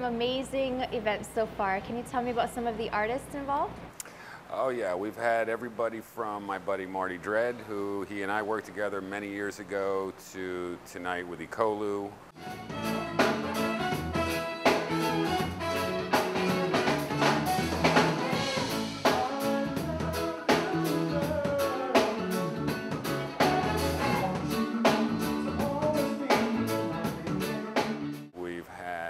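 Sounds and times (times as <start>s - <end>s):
electric bass: 12.4s - 28.3s
live band playing: 12.4s - 28.3s
person singing: 16.1s - 28.2s.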